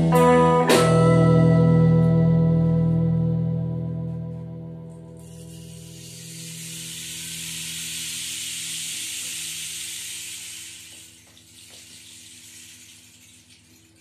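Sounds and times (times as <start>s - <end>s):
rain stick pebbles trickling: 5.2s - 14.0s.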